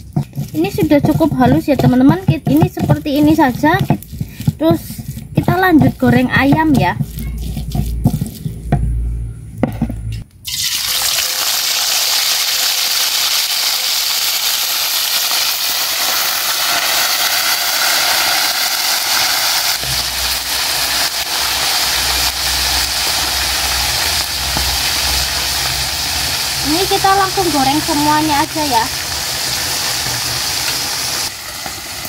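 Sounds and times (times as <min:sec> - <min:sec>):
chicken sizzling in hot oil: 0:10.5 - 0:32.0.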